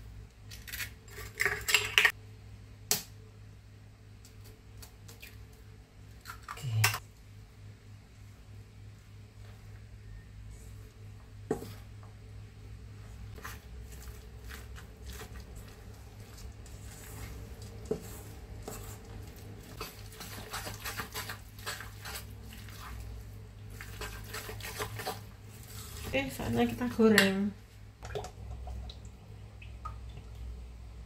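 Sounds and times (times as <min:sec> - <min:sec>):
spoon stirring thick batter: 0:13.0 - 0:27.0.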